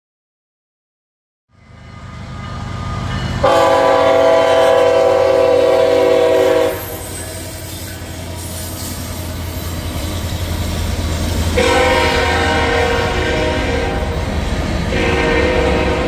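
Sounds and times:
freight train rumbling past: 1.5s - 16.0s
locomotive air horn blast: 3.4s - 7.6s, 11.5s - 14.2s, 14.9s - 16.0s.

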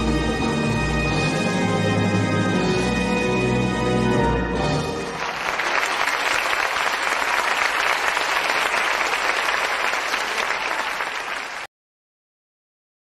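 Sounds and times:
music: 0.0s - 5.9s
audience applauding: 5.0s - 11.7s.

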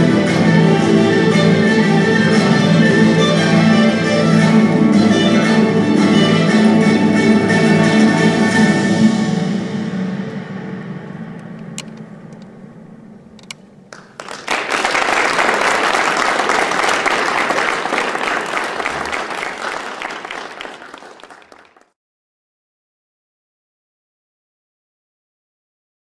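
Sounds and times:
audience applauding: 13.9s - 22.0s.

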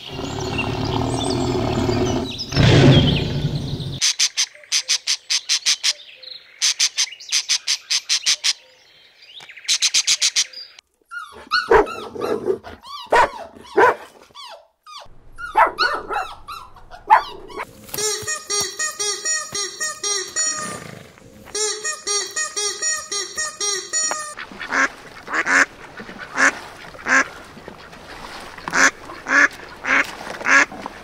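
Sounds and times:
tiger growling: 0.0s - 4.0s
dog barking: 11.5s - 14.1s, 15.4s - 17.6s
pitch-bending animal calls: 14.9s - 24.4s.

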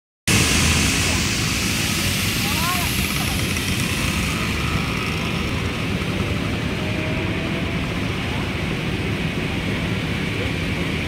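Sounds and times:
steady rushing with low rumble: 0.3s - 11.0s.

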